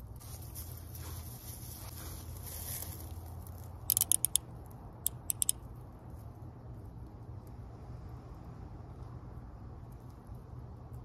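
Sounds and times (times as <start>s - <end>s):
low steady hum: 0.0s - 11.0s
handcuff lock clicking: 3.9s - 4.4s, 5.1s - 5.6s.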